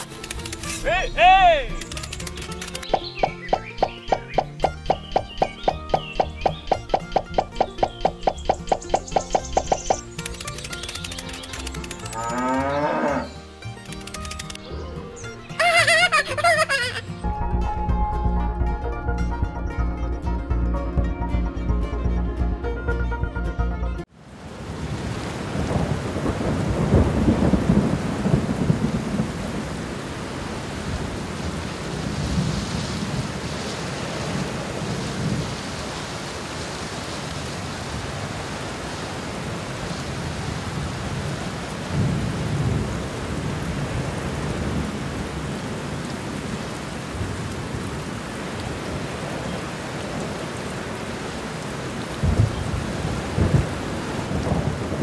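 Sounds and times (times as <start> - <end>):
steady rain hiss: 0.0 - 15.3, 24.1 - 55.0
rolling thunder: 24.7 - 35.6, 40.2 - 45.6, 52.2 - 55.0
sharp thunder cracks: 25.6 - 29.7, 52.2 - 55.0.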